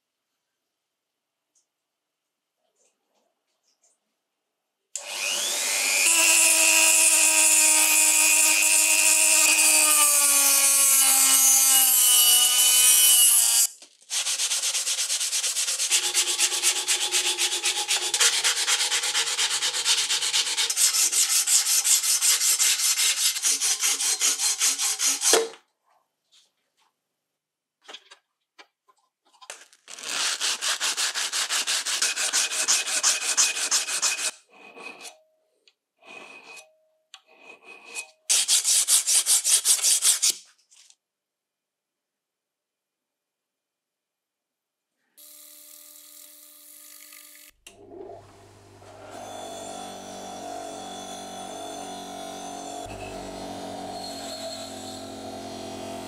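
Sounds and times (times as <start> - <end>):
rotary tool grinding metal: 5.0 - 14.3, 31.6 - 35.2, 36.0 - 40.3, 48.8 - 56.0
hand sanding metal: 10.9 - 25.4, 30.0 - 35.1, 37.5 - 40.4.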